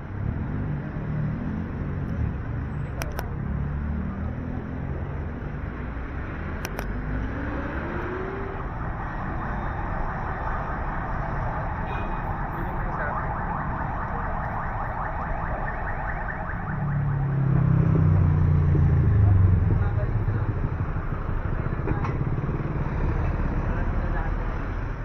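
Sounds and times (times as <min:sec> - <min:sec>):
traffic noise: 0:00.0 - 0:25.0
sharp clicks: 0:02.9 - 0:03.3, 0:06.6 - 0:07.0
vehicle engine speeding up: 0:03.1 - 0:11.8, 0:13.1 - 0:25.0.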